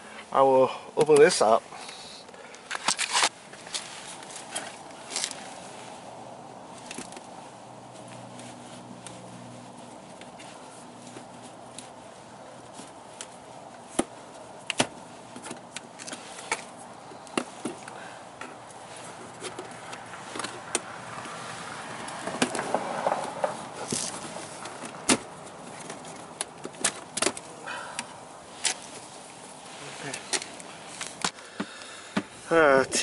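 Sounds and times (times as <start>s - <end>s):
plastic scraping and rubbing: 18.9s - 27.5s.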